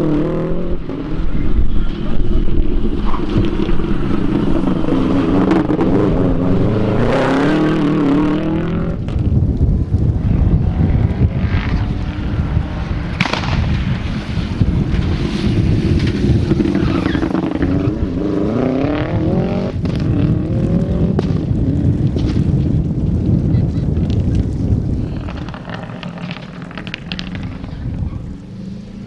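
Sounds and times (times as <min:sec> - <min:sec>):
rally car engine accelerating: 0:00.0 - 0:09.3, 0:10.0 - 0:22.1.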